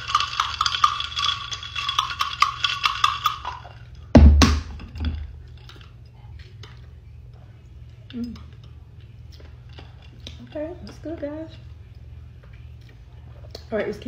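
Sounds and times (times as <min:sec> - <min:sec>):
ice clinking in a glass: 0:00.0 - 0:03.7
sharp knock: 0:04.2 - 0:04.8.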